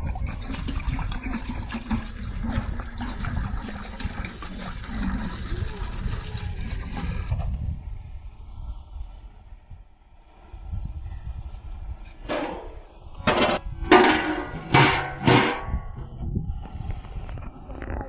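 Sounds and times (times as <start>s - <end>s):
water pouring and splashing: 0.0s - 7.5s
steady low rumble: 6.5s - 18.0s.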